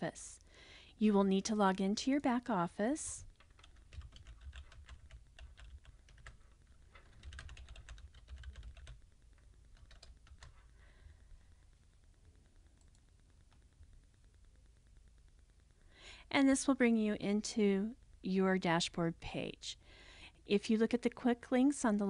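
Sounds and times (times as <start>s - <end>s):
keyboard typing: 3.3s - 10.7s.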